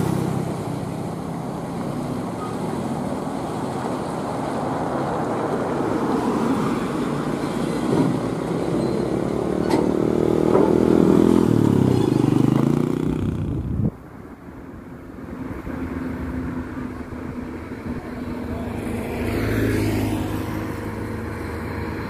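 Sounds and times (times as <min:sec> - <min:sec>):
truck diesel engine under load: 0:06.9 - 0:19.0.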